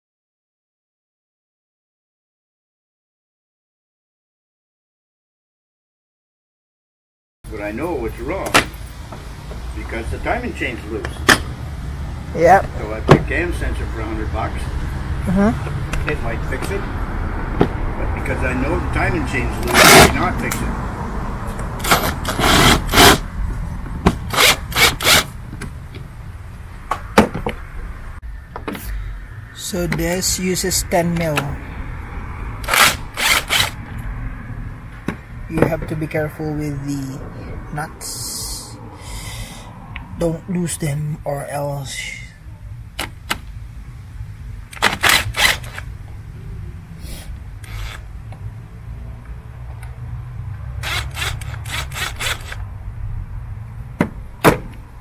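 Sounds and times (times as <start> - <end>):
drill clicks: 21.8 - 23.2, 24.3 - 25.3, 32.6 - 33.8, 44.7 - 45.9, 47.6 - 48.1, 50.8 - 52.6.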